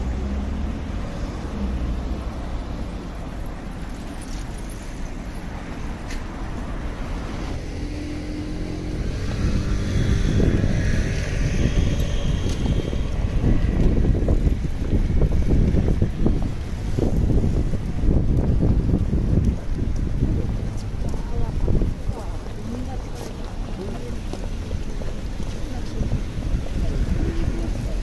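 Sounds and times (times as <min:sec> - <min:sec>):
motor vehicles passing: 0:00.0 - 0:28.0
wind buffeting microphone: 0:05.6 - 0:28.0.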